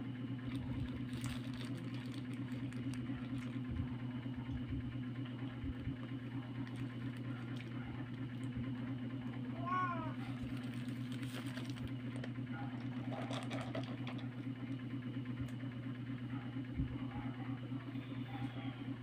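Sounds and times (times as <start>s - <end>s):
low mechanical hum: 0.0s - 19.0s
chewing: 0.5s - 3.6s
paper wrapper rustling: 0.5s - 3.6s, 10.4s - 11.9s.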